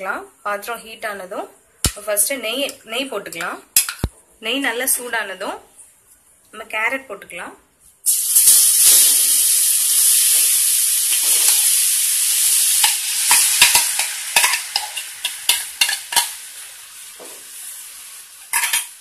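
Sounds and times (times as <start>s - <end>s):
food sizzling in hot fat: 8.0s - 19.0s
spoon scraping a pan: 10.3s - 11.8s, 12.8s - 16.4s, 18.4s - 19.0s.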